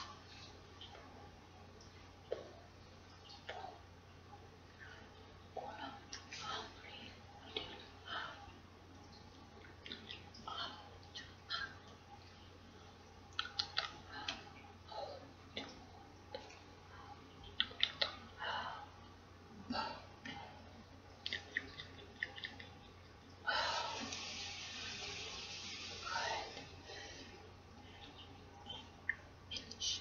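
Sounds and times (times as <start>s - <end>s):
low electrical hum: 0.0s - 30.0s.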